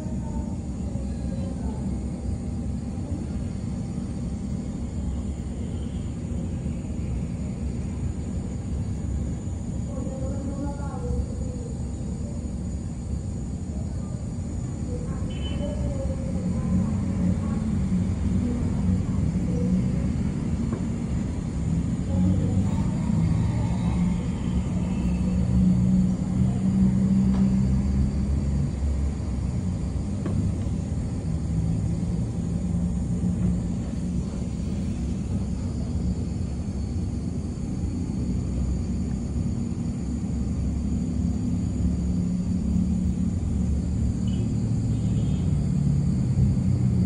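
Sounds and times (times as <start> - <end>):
traffic engines rumbling: 14.9 - 47.0.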